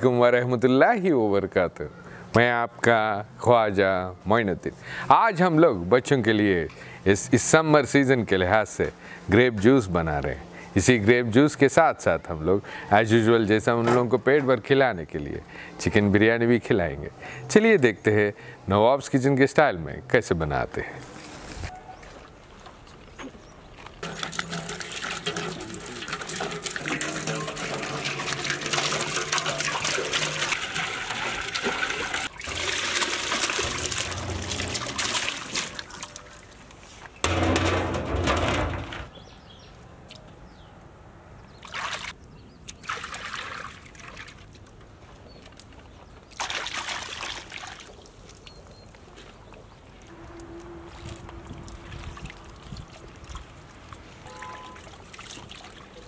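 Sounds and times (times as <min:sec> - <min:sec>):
water pouring into metal tub: 0:24.0 - 0:36.6
hands splashing water: 0:24.0 - 0:36.7, 0:41.6 - 0:44.8, 0:45.6 - 0:48.5, 0:50.4 - 0:56.0.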